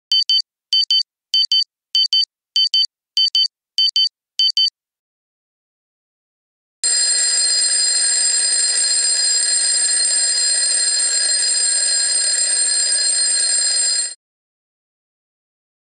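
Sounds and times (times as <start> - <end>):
twin-bell alarm clock ringing: 6.8 - 14.2.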